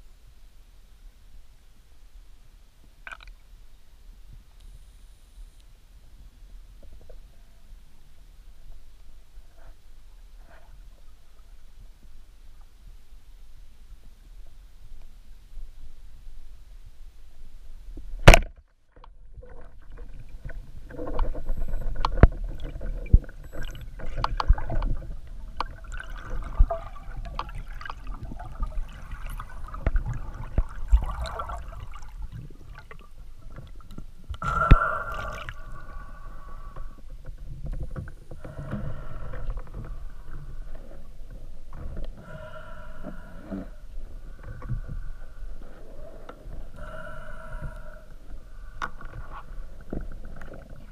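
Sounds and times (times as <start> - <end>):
gurgling water: 19.0 - 50.9.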